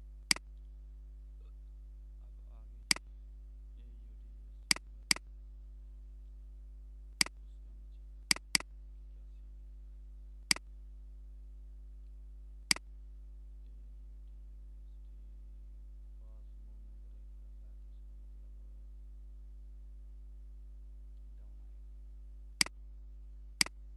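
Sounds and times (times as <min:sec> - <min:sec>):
faint electrical hum: 0:00.0 - 0:23.9
mouse button clicking: 0:08.3 - 0:08.6.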